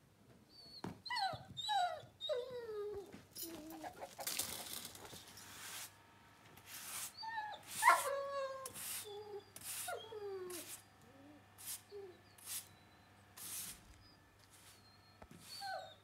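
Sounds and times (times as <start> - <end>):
dog whining: 0.5 - 5.0, 7.1 - 12.9, 13.9 - 16.0
push broom scraping dirt: 4.9 - 6.0, 6.6 - 9.0.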